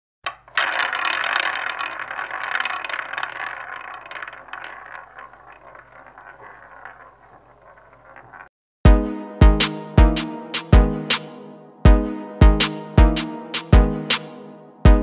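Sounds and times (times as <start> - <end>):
roulette ball clattering: 0.2 - 8.5.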